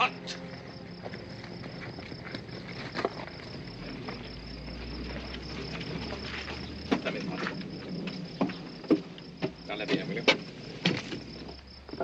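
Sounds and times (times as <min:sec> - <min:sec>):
insects chirring: 0:00.0 - 0:12.0
knocks: 0:08.1 - 0:11.3.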